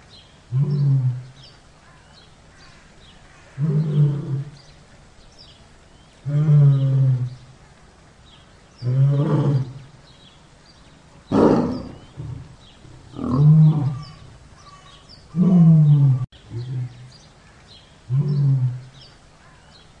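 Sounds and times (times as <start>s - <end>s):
tiger roaring: 0.5s - 1.4s, 3.6s - 4.6s, 6.2s - 7.5s, 8.8s - 10.0s, 11.3s - 17.2s, 18.1s - 19.0s.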